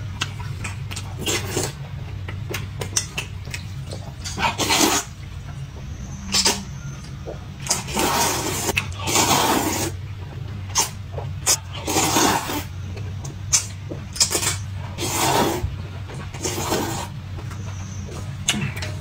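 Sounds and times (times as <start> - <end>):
person slurping noodles: 7.7 - 10.0, 11.8 - 12.7, 15.0 - 15.7, 16.4 - 17.1.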